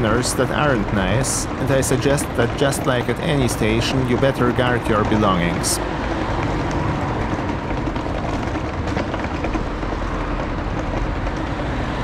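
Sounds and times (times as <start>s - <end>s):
city traffic: 0.0s - 12.0s.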